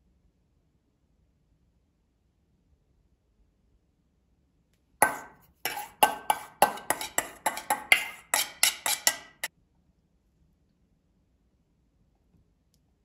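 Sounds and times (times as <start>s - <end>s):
metal spoon striking metal bowl: 5.0s - 9.5s.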